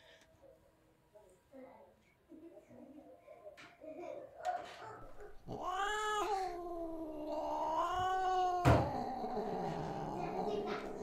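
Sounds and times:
cat meowing: 5.1 - 11.0.

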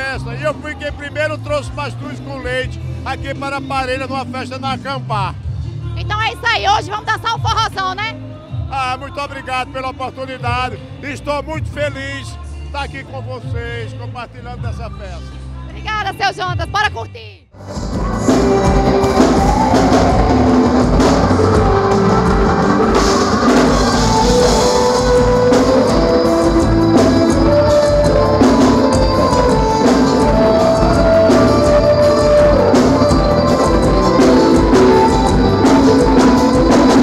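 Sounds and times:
bass: 0.0 - 37.0
guitar: 15.4 - 37.0
person singing: 17.1 - 37.0
drum kit beat: 17.6 - 37.0.

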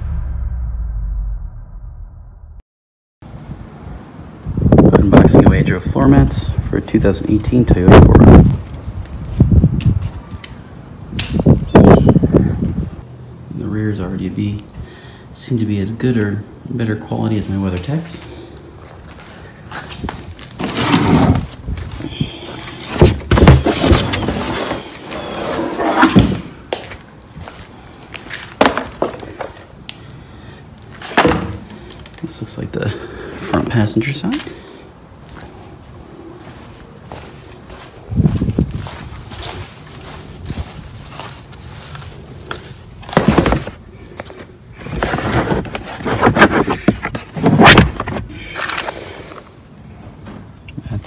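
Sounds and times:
mat scraping on cardboard box: 20.6 - 21.5.

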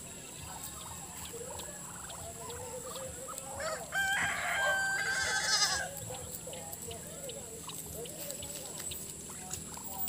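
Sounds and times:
rooster crowing: 3.5 - 6.0.

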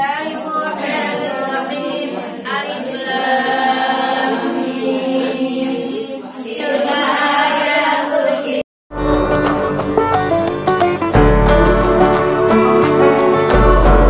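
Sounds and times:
women chanting in unison: 0.0 - 8.7.

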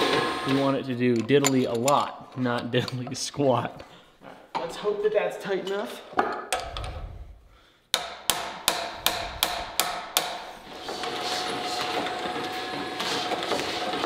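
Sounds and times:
hammer striking a wrench: 7.9 - 10.5.

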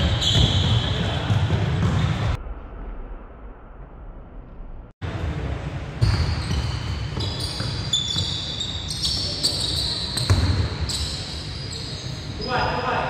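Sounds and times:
basketball bouncing on wooden floor: 0.0 - 2.4, 10.2 - 10.6
sneakers squeaking: 0.0 - 2.4, 5.9 - 12.8.

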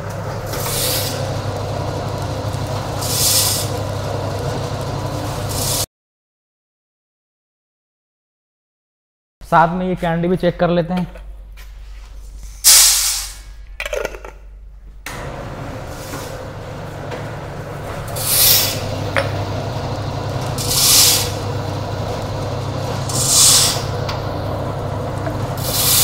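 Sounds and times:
packing machine motor hum: 0.0 - 5.9, 15.0 - 26.0
machine hiss: 0.5 - 5.9, 12.6 - 13.5, 18.1 - 24.7, 25.4 - 26.0.

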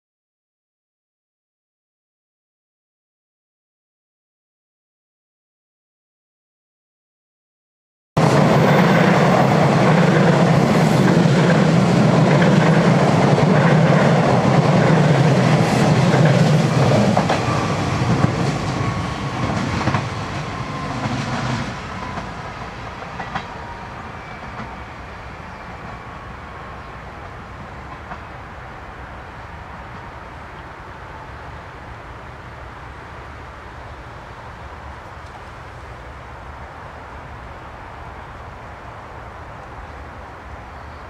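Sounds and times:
train wheels rumbling on rail: 8.2 - 41.0
rail joint clicks: 8.8 - 24.9, 27.2 - 28.4, 35.0 - 35.8.

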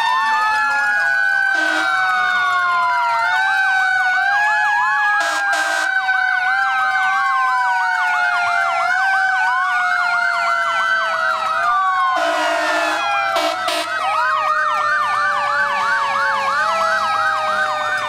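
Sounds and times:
emergency sirens wailing: 0.0 - 18.0
sirens yelping: 0.0 - 18.0
vehicle horn blast: 1.6 - 1.9, 5.2 - 5.9, 12.2 - 13.9.

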